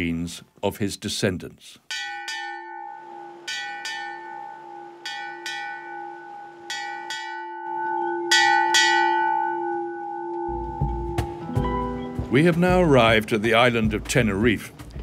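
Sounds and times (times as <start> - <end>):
ship's bell ringing: 1.9 - 12.5.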